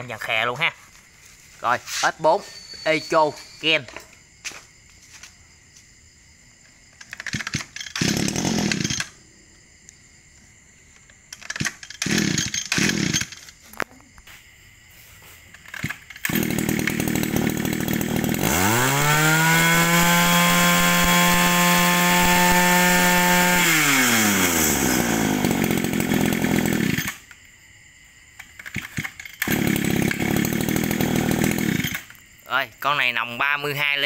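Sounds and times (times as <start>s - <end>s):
brush cutter engine revving: 7.0s - 9.2s, 11.4s - 13.6s, 15.6s - 27.4s, 28.5s - 32.2s.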